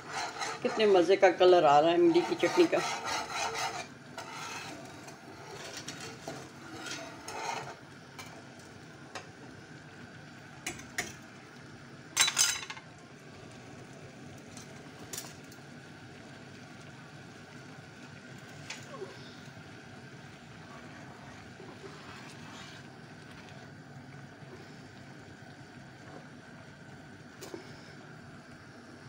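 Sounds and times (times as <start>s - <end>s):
whisk scraping metal pan: 0.0s - 7.8s, 20.8s - 23.0s
chutney simmering: 0.0s - 29.0s.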